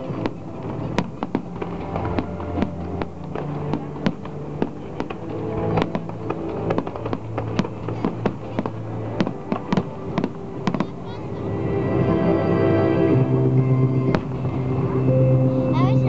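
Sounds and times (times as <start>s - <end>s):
firework shells bursting: 0.0s - 10.9s
sustained music: 0.0s - 16.0s.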